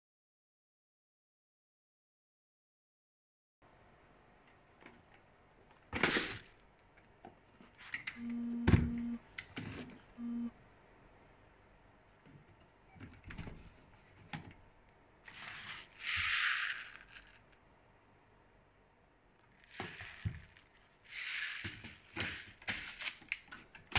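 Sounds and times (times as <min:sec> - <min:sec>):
electric motor hum: 0:08.2 - 0:09.2.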